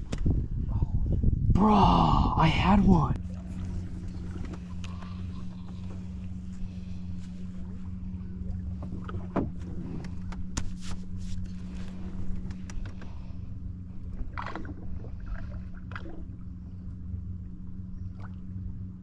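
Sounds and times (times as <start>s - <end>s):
light knocks and clicks on boat: 0.0s - 0.4s, 3.2s - 19.0s
electric trolling motor humming: 3.2s - 19.0s.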